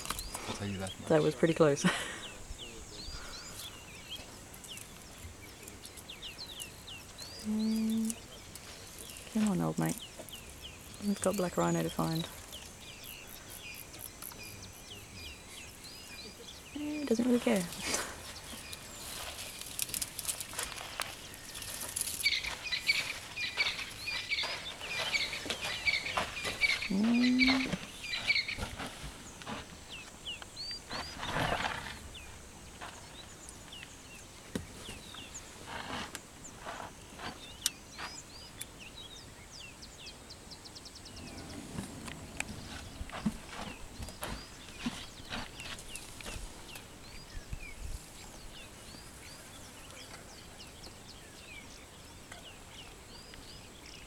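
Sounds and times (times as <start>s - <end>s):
birds chirping: 0.0s - 54.0s
elephant low call: 26.8s - 27.8s.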